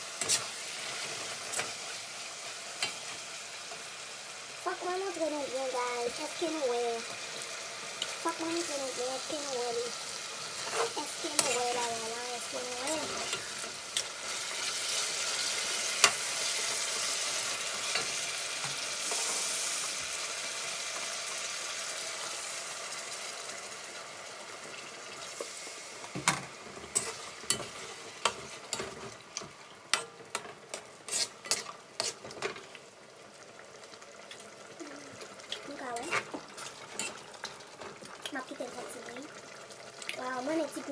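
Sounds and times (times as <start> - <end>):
sausage and sauce sizzling in pot: 0.0 - 40.9.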